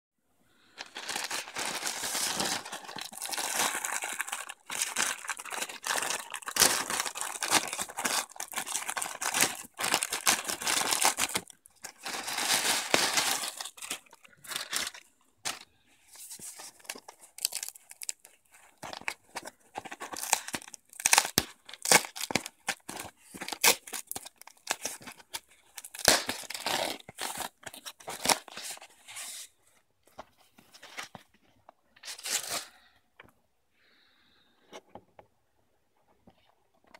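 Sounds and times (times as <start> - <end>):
foam wrap rustling: 0.8 - 15.6
plastic bag crinkling and tearing: 0.8 - 15.6, 16.6 - 28.6.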